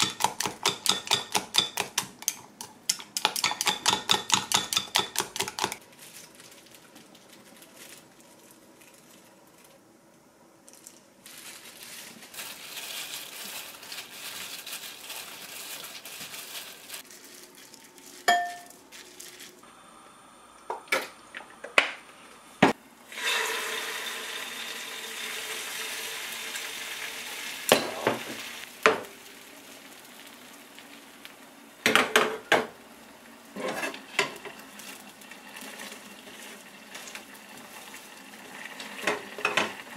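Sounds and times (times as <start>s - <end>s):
glass dishes and utensils clinking: 18.2s - 18.7s
egg sizzling in a pan: 23.1s - 31.9s, 32.7s - 39.9s.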